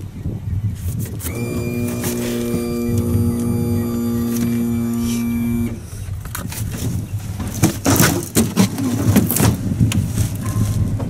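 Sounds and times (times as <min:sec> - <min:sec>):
motor drone: 0:01.3 - 0:05.9
gear clattering in metal boat: 0:06.2 - 0:11.0.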